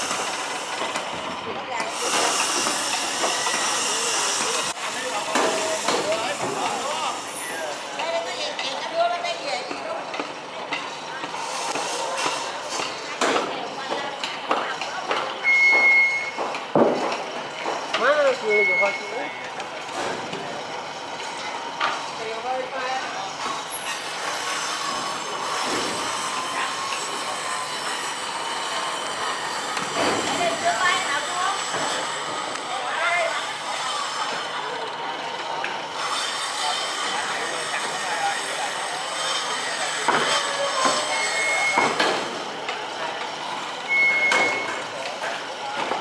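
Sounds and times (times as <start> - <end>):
steel wheels grinding on rails: 0.0 - 46.0
high squeal: 39.5 - 41.8.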